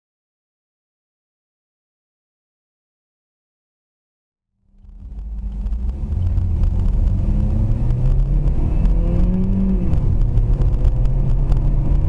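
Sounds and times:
car engine: 4.6 - 12.0
road rumble: 4.6 - 12.0.

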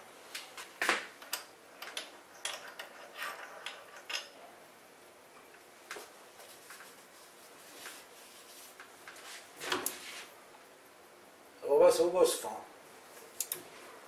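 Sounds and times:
metallic clicks of small tooling: 13.4 - 13.6.

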